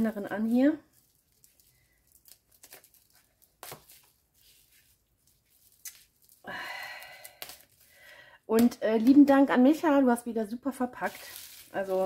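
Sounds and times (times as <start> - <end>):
gift wrapping crackling: 0.0 - 8.1, 10.9 - 12.0.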